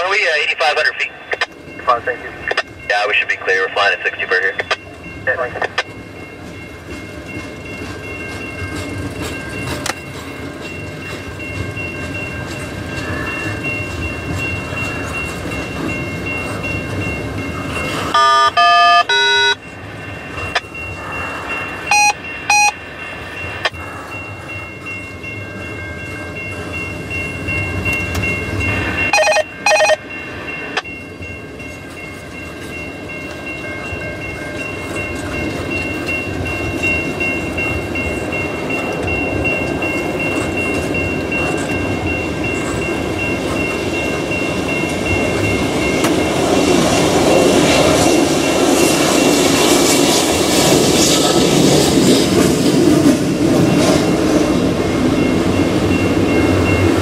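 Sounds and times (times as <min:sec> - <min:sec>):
train wheels rumbling on rails: 0:00.0 - 0:57.0
high ringing tone: 0:10.3 - 0:46.3.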